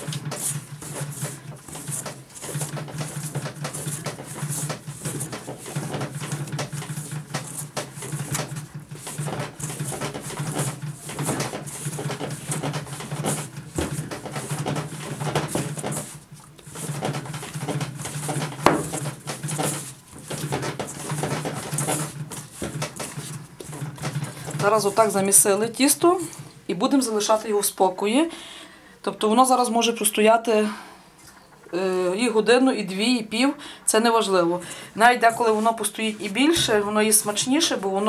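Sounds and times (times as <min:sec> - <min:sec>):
dough squishing while kneaded: 0:00.0 - 0:27.4.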